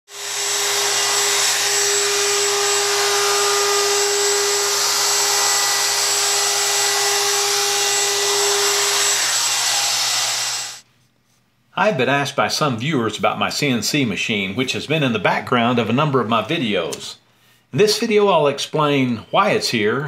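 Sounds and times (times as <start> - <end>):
router whining: 0.1 - 10.8.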